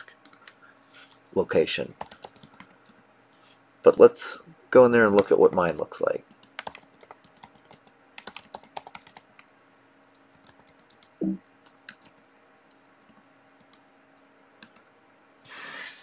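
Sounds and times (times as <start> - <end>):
typing on computer keyboard: 2.0 - 3.0, 6.3 - 9.5, 10.3 - 12.2, 13.0 - 13.8.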